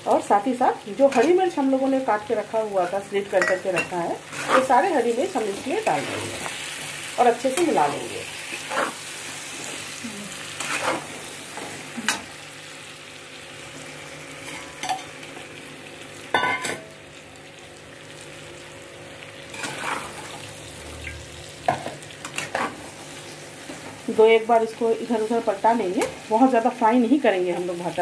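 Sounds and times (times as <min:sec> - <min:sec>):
frying in oil sizzling: 0:00.0 - 0:28.0
spatula scraping a pan: 0:04.3 - 0:04.9, 0:08.4 - 0:09.8, 0:10.6 - 0:11.2, 0:19.5 - 0:20.4.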